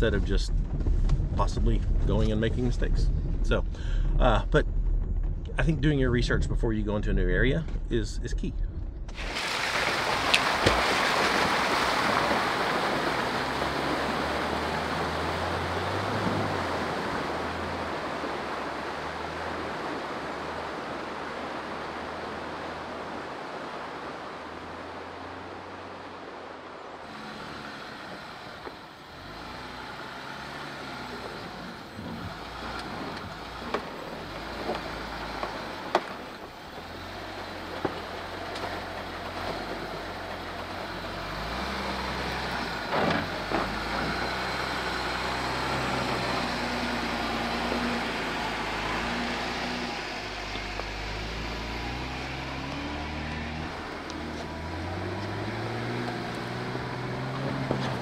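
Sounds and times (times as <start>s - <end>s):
tyres knocking over rocks: 9.1s - 14.3s
vehicle engine running slowly: 27.1s - 58.0s.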